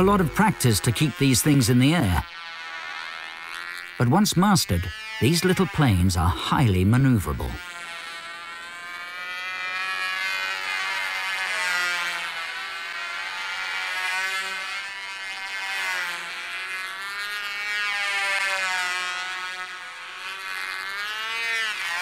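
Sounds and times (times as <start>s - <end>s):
model plane motor buzzing: 0.0s - 22.0s.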